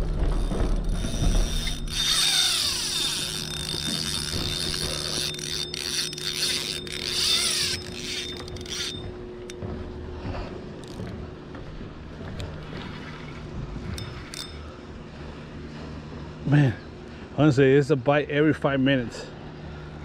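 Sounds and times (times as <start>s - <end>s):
fishing reel drag buzzing: 0.0s - 9.6s, 12.8s - 14.8s.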